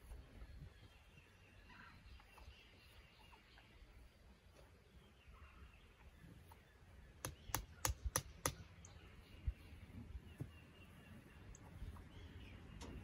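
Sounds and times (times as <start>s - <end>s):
sharp clicks: 7.2s - 8.6s.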